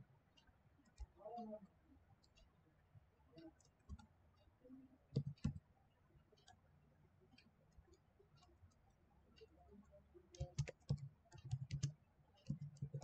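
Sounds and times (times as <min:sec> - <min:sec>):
computer keyboard key clicks: 0:05.2 - 0:05.6, 0:10.4 - 0:13.0.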